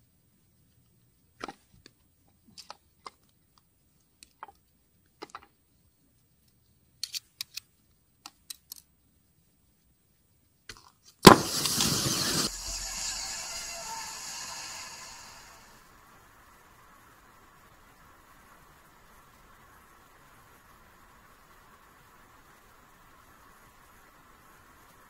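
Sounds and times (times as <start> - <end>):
small clicks and crackles: 0.4 - 9.1
rushing hiss of venting battery: 11.3 - 15.9
loud burst: 11.3 - 16.0.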